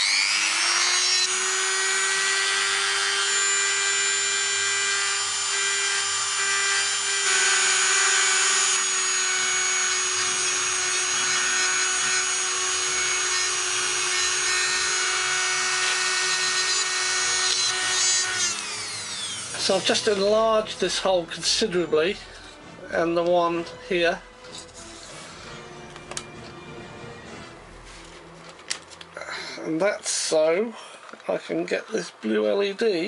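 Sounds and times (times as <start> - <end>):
rotary tool grinding: 0.0 - 20.4, 24.4 - 25.4.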